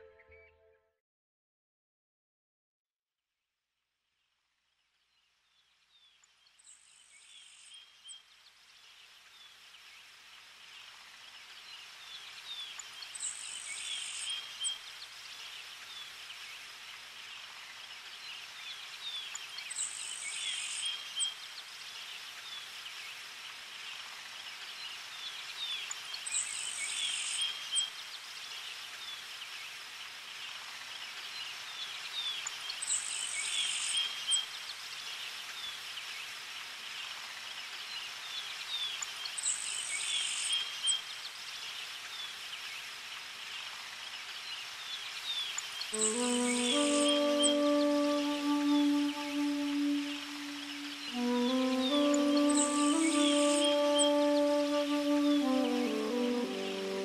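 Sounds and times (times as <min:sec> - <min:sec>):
birds chirping: 0:45.5 - 0:57.0.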